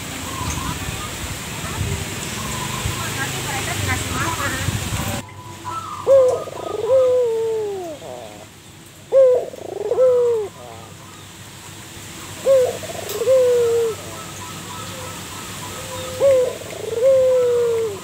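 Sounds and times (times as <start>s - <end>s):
dove cooing: 5.6s - 8.5s, 9.1s - 11.0s, 12.3s - 18.0s.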